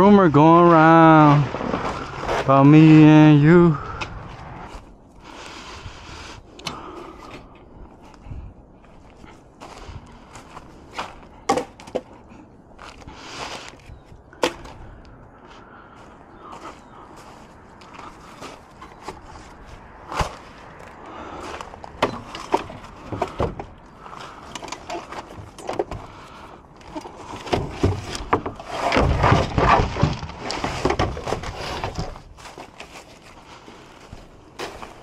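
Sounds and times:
wooden pieces knocking and clattering: 0:10.9 - 0:13.0, 0:20.1 - 0:33.0.

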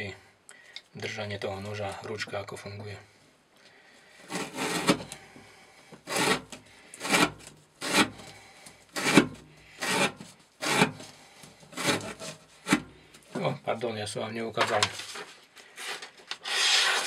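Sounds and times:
knife slicing through rope: 0:06.1 - 0:08.2.

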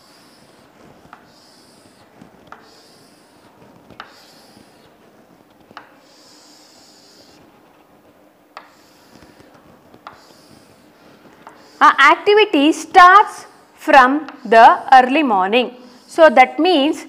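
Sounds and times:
chalk tapping on board: 0:00.0 - 0:07.5, 0:08.5 - 0:12.1, 0:14.2 - 0:14.8
chalk scratching on chalkboard: 0:00.0 - 0:16.9.

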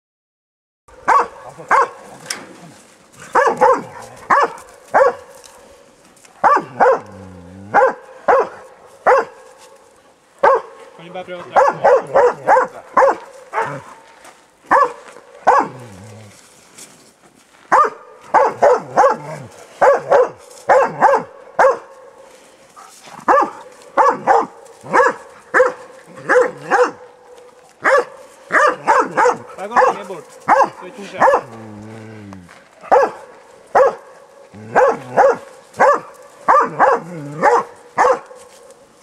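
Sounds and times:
dog barking: 0:00.9 - 0:02.2, 0:03.2 - 0:05.6, 0:06.4 - 0:09.5, 0:10.4 - 0:14.0, 0:14.7 - 0:15.9, 0:17.7 - 0:22.2, 0:22.8 - 0:31.6, 0:32.8 - 0:38.7.

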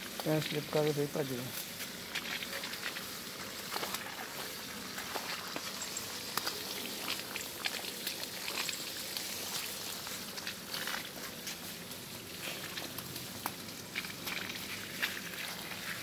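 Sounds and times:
crackling ticks of drops: 0:00.0 - 0:15.8
hose water spraying on leaves: 0:00.0 - 0:16.0.

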